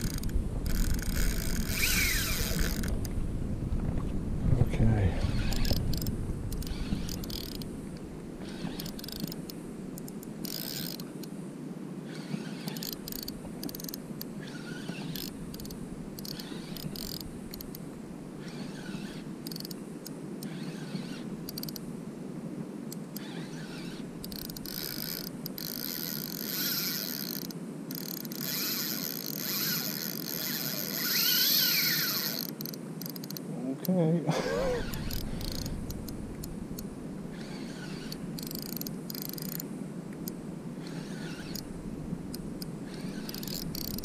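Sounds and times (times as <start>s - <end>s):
fishing reel drag buzzing: 0.0s - 3.0s, 5.2s - 7.7s, 8.4s - 11.1s, 12.1s - 17.8s, 18.4s - 19.8s, 20.4s - 21.8s, 23.2s - 33.4s, 34.4s - 39.6s, 40.8s - 41.7s, 42.3s - 44.0s
steady low rush: 1.7s - 10.2s, 34.2s - 43.8s.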